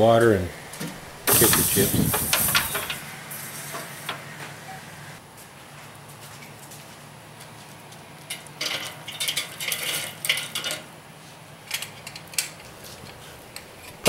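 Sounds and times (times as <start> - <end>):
wood chips clattering onto charcoal: 1.3 - 4.0, 7.9 - 11.0.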